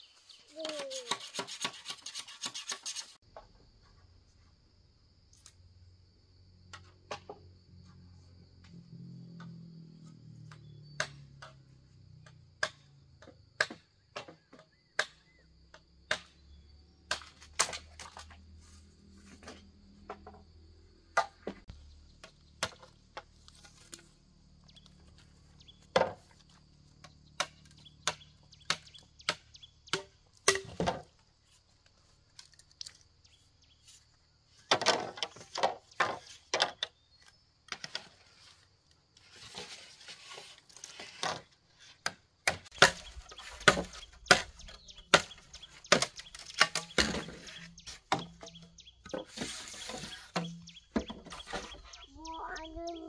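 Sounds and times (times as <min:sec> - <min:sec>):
blade chopping bamboo: 0:17.1 - 0:18.3, 0:27.0 - 0:31.1, 0:42.0 - 0:48.5.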